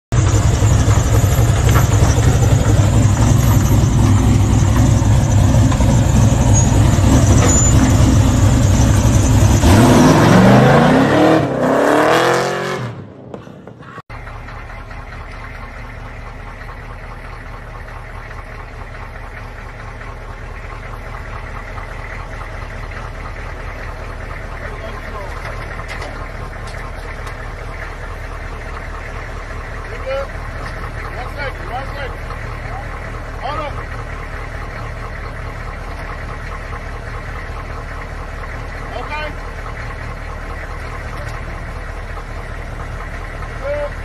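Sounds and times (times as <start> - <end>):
car engine idling with deep rumble: 0.1 - 9.9, 13.4 - 44.0
car engine revving: 0.1 - 13.6
quiet steady engine hum: 13.6 - 44.0.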